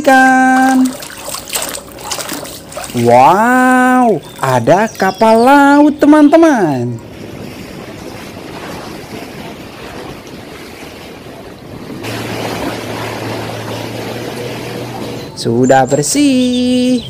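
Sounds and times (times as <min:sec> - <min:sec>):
sea waves washing: 0:00.0 - 0:17.0
steady low hum: 0:00.0 - 0:17.0
wind on microphone: 0:06.8 - 0:15.4.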